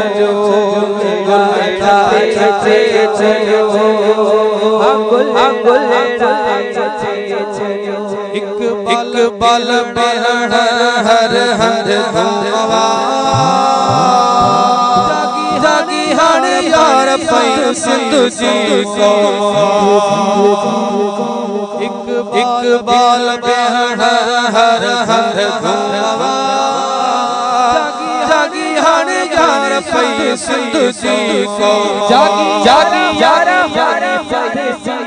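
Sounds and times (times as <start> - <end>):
voices singing a devotional chant: 0.0 - 35.0
steady low tone: 13.4 - 15.3.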